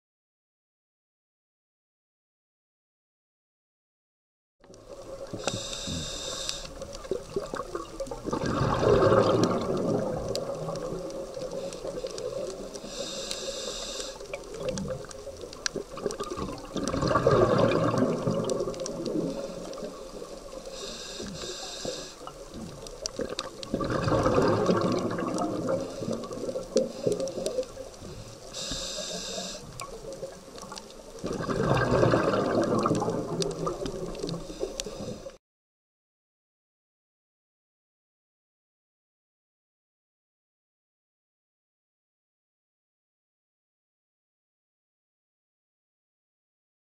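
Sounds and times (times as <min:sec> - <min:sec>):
regulator inhale hiss: 0:05.3 - 0:07.0, 0:11.4 - 0:14.6, 0:19.1 - 0:22.6, 0:25.8 - 0:30.0, 0:34.2 - 0:35.4
exhaust bubbles rushing: 0:07.3 - 0:11.4, 0:16.0 - 0:19.4, 0:23.2 - 0:26.7, 0:31.2 - 0:34.2.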